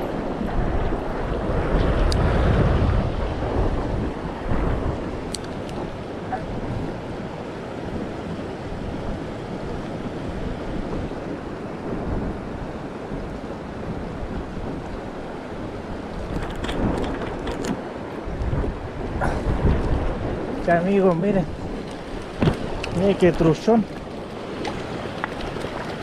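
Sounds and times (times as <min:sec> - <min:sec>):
wind buffeting microphone: 0:00.0 - 0:26.0
river water rushing over rocks: 0:12.4 - 0:26.0.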